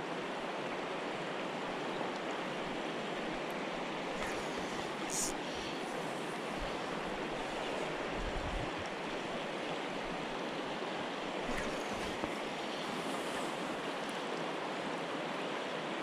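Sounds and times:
river rushing past rocks: 0:00.0 - 0:16.0.

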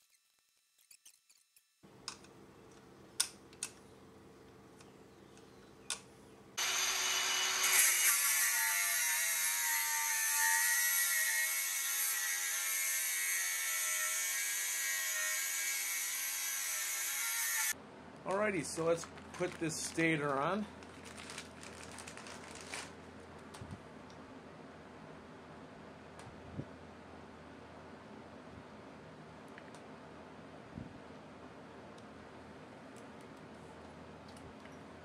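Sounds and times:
angle grinder grinding metal: 0:06.6 - 0:17.8.

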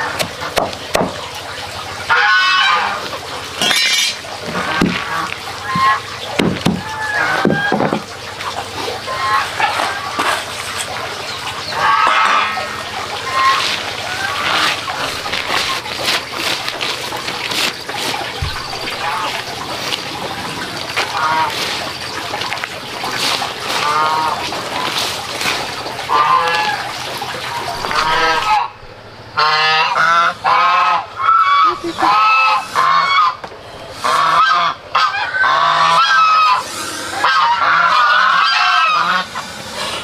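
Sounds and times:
geese honking: 0:01.2 - 0:40.0
dry material rustling on tarp: 0:13.1 - 0:28.6.

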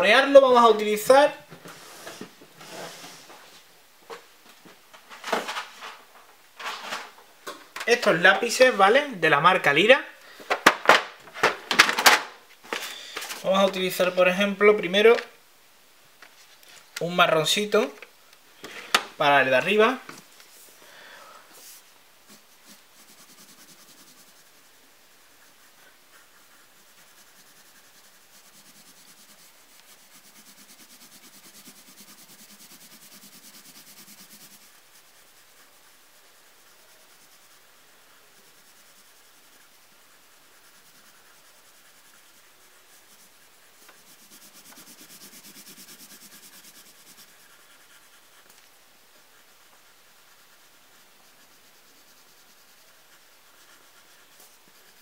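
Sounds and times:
pencil shading on paper: 0:21.6 - 0:55.0.

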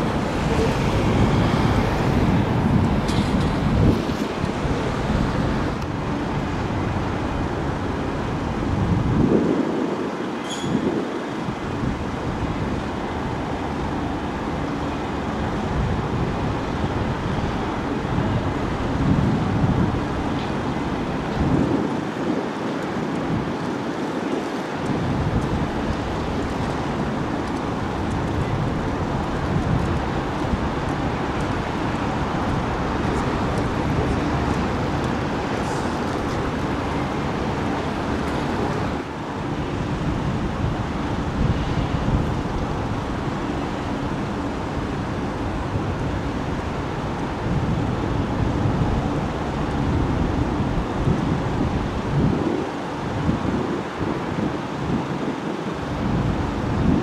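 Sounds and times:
jet engines roaring: 0:00.0 - 0:08.0
wind on microphone: 0:00.0 - 0:57.0.

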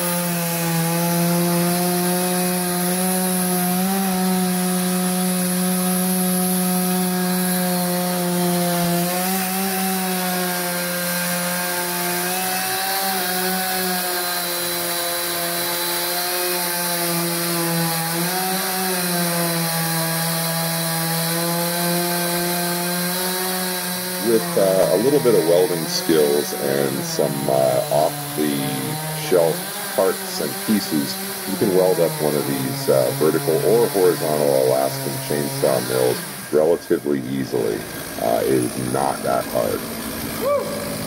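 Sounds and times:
chainsaw cutting log: 0:00.0 - 0:41.0.

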